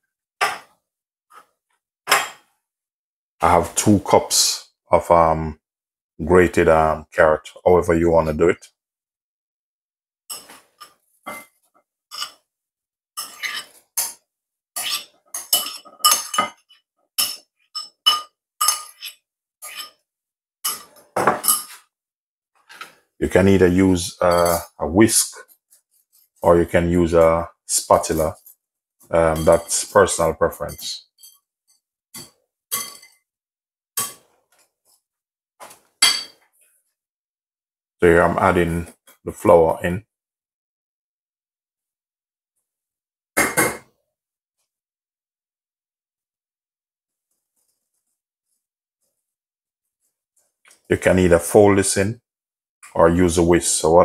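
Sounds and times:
metal spoon scraping ceramic bowl: 10.3s - 12.4s, 13.2s - 14.2s, 14.8s - 20.0s, 29.2s - 33.2s.

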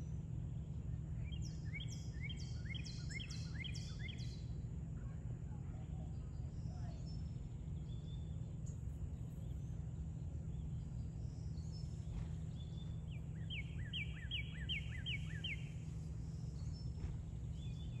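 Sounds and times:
low outdoor rumble: 0.0s - 18.0s
bird whistled notes: 13.4s - 15.8s.

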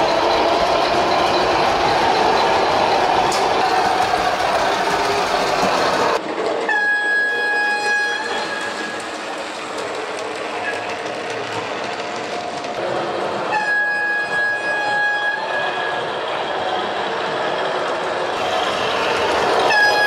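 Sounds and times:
model train rolling on track: 0.0s - 20.0s
locomotive horn: 6.7s - 8.9s, 13.5s - 16.1s, 19.6s - 20.0s.

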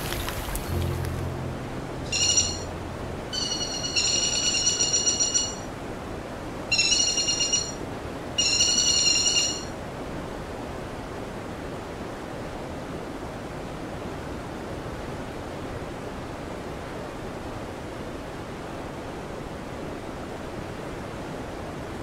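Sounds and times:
high trilling call: 0.7s - 5.7s, 6.7s - 7.8s, 8.4s - 9.7s.

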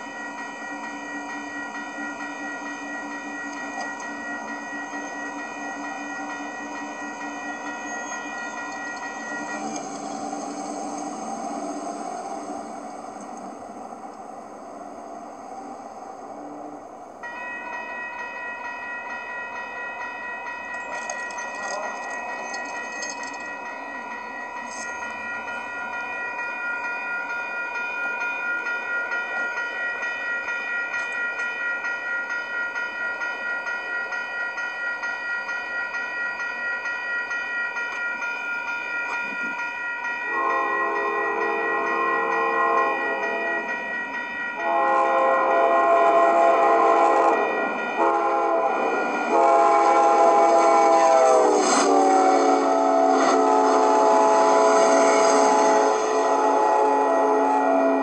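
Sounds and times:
railroad crossing bell ringing: 0.0s - 58.0s
train horn blasts: 40.3s - 43.8s, 44.6s - 58.0s.

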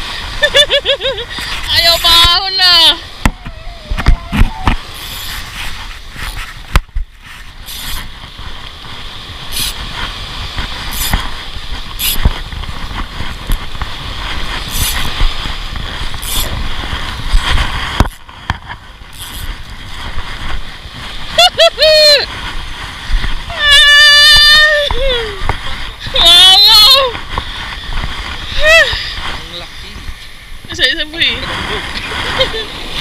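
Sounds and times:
fishing reel cranking: 4.9s - 5.6s, 7.6s - 8.1s, 9.4s - 9.9s, 10.8s - 11.3s, 12.0s - 12.3s, 14.6s - 15.2s, 16.2s - 16.6s, 19.1s - 20.0s.

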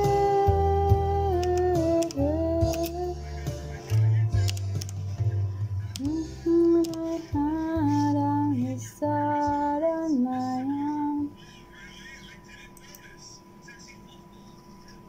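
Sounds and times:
woman singing a pop ballad: 0.0s - 3.2s, 6.0s - 11.4s.

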